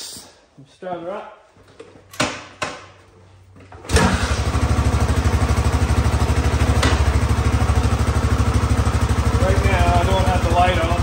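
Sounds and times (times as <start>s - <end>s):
motorcycle engine idling: 4.2s - 11.0s.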